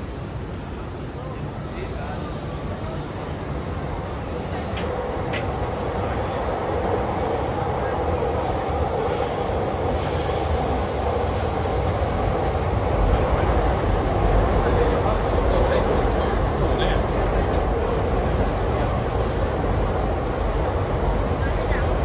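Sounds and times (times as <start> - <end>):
train rumbling past: 0.0 - 22.0
wheels squealing on rail: 7.0 - 13.5.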